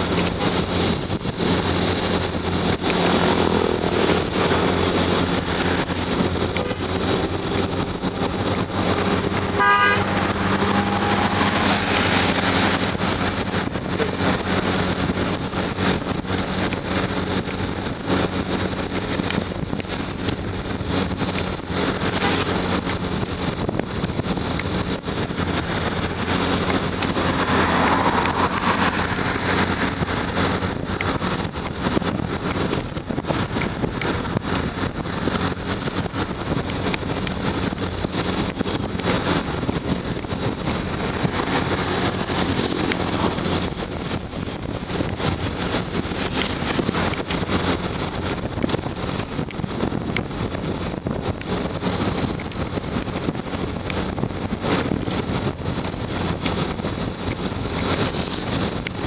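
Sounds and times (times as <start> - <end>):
motorcycle engine cruising: 0.0 - 59.0
wind rushing over microphone: 0.0 - 59.0.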